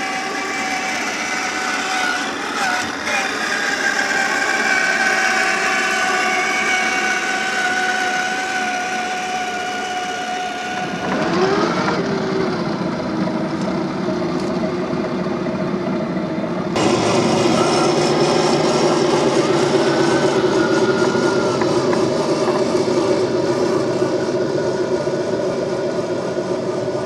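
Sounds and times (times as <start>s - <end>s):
toy car electric motor whining: 0.0s - 12.6s, 16.8s - 22.7s.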